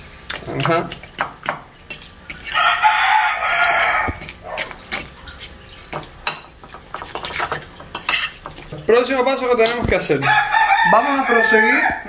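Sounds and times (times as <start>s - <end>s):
rooster crowing: 2.5s - 4.2s, 10.1s - 12.0s
fork scraping a glass bowl: 3.6s - 8.4s.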